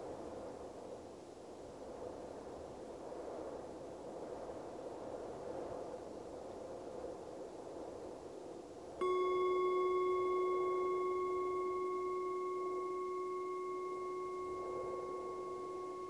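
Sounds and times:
soft rush of wind: 0.0s - 16.0s
singing bowl ringing: 9.0s - 16.0s.

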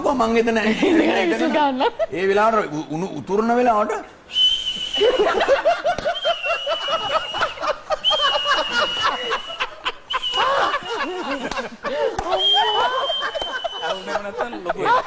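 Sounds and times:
thin high whistle: 4.3s - 5.4s, 12.4s - 14.1s
man laughing hard: 5.0s - 15.0s.

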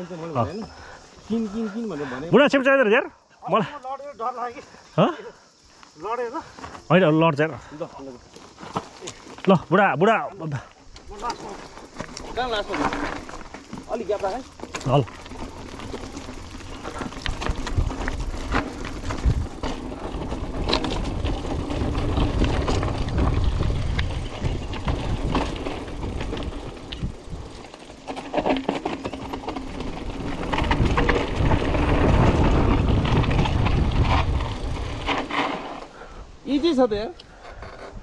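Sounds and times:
bike rattling over ground: 6.0s - 38.0s
wind rushing over microphone: 16.9s - 27.7s, 29.7s - 35.4s.

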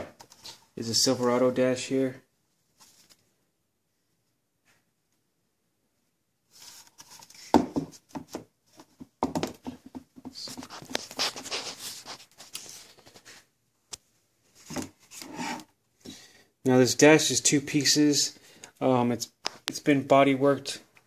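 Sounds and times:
plastic part knocking on wood: 9.0s - 10.3s.

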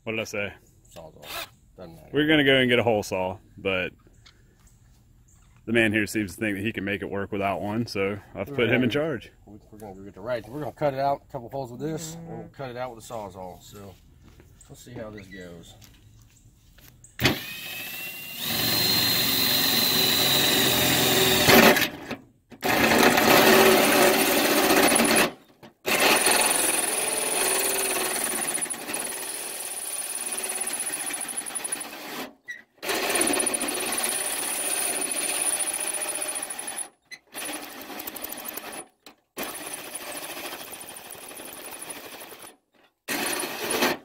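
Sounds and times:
drill hole saw cutting sheet metal: 17.2s - 21.9s, 22.6s - 42.5s, 43.1s - 44.0s.

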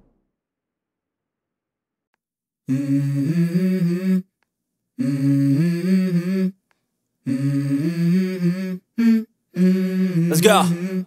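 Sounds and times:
hummed vocal melody: 2.7s - 4.4s, 5.0s - 6.6s, 7.2s - 11.0s.

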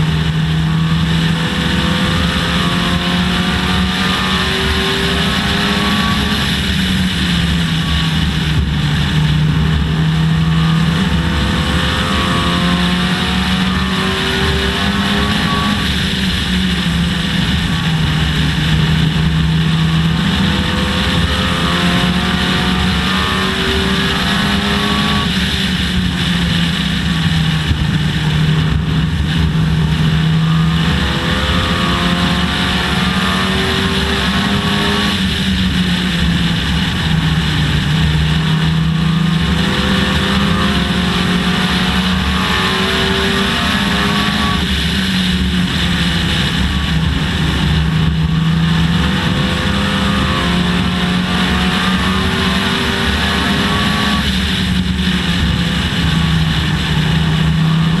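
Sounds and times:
race car engine revving: 0.0s - 58.0s
wind and road noise: 0.0s - 58.0s.

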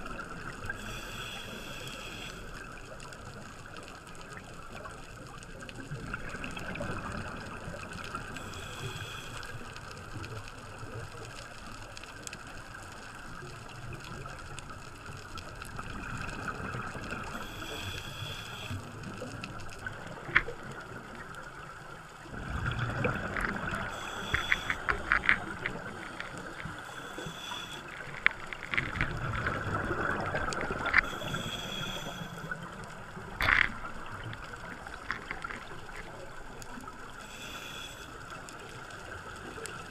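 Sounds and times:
exhaled bubbles gurgling: 0.0s - 11.8s, 12.4s - 39.9s
regulator inhale hiss: 0.6s - 3.0s, 8.2s - 10.2s, 17.2s - 19.3s, 23.7s - 28.8s, 30.8s - 33.0s, 37.1s - 38.9s.

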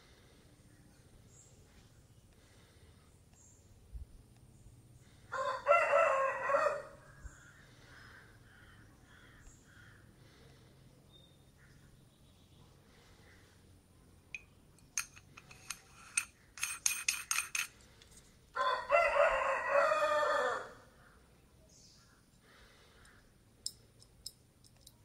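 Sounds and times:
rooster crowing: 5.3s - 7.1s, 18.6s - 20.8s
metal tubes clicking: 14.3s - 18.2s, 23.6s - 25.0s.

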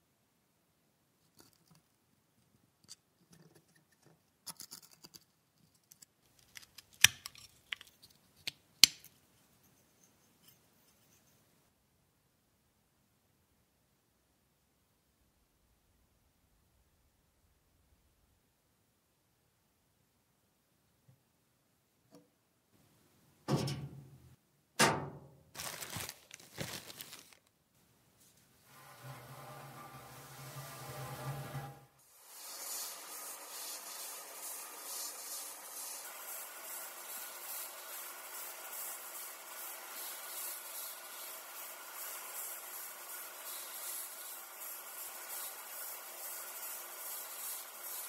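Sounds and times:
plastic bag rustling: 25.6s - 27.5s.

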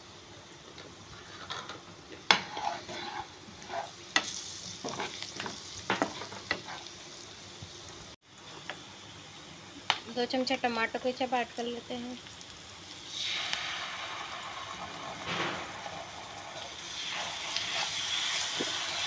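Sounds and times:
vegetables sizzling in oil: 0.0s - 19.0s
spatula scraping a pan: 1.1s - 7.0s, 15.2s - 19.0s.

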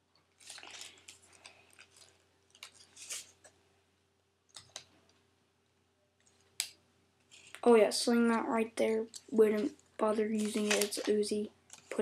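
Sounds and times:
toy gun plastic clicks and rustles: 10.3s - 12.0s.

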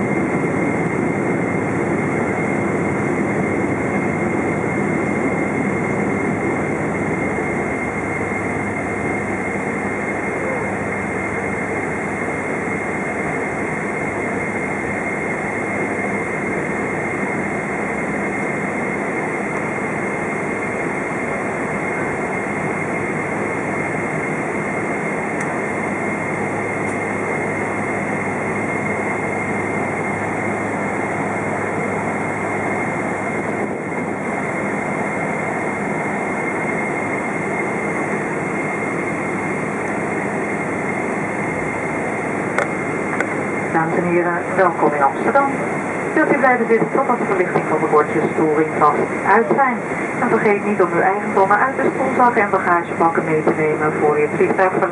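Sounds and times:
jet engine cabin drone: 0.0s - 54.9s
thin high whine: 20.0s - 54.9s.

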